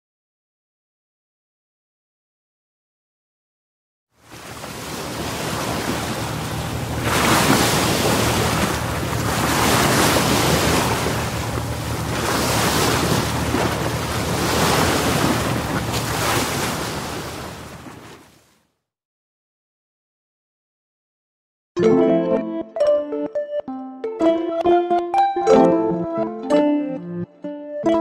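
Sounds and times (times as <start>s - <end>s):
surf breaking on beach: 4.2s - 18.5s
low rumble of wind: 4.5s - 18.0s.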